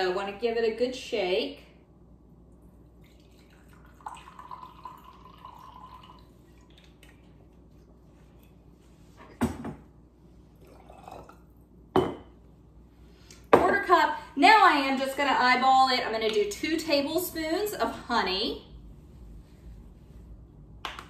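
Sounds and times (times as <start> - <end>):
liquid trickling into a glass cup: 3.0 - 7.4, 10.6 - 11.5.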